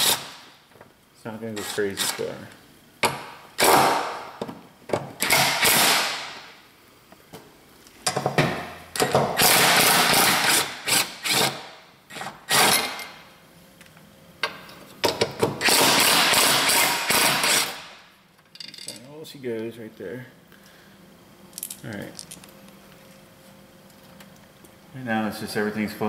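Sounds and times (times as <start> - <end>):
impact wrench hammering: 3.0 - 6.5, 8.1 - 13.1, 14.4 - 18.0.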